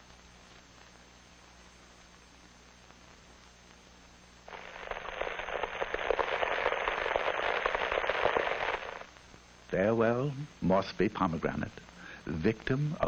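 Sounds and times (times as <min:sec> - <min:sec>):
film hiss: 0:00.0 - 0:13.0
loud dense crackling: 0:04.5 - 0:09.2.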